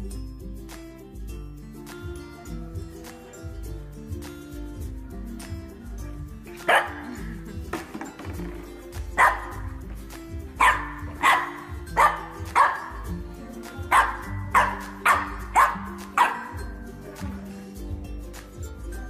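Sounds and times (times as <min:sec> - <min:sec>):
background music: 0:00.0 - 0:19.0
dog barking: 0:06.7 - 0:07.3, 0:09.2 - 0:09.7, 0:10.6 - 0:13.1, 0:13.9 - 0:16.6.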